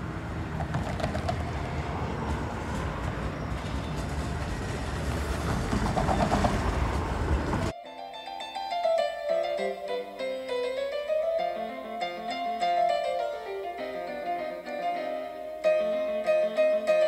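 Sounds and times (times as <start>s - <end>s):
sharp rail sounds: 0.0s - 7.7s
streetcar wheels rumbling on rails: 0.0s - 7.7s
street traffic: 0.0s - 7.8s.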